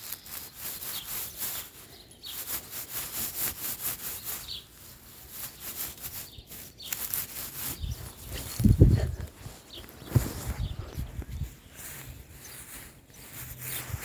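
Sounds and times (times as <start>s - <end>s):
grass rustling against microphone: 0.0s - 14.0s
short bird chirps: 4.0s - 8.8s.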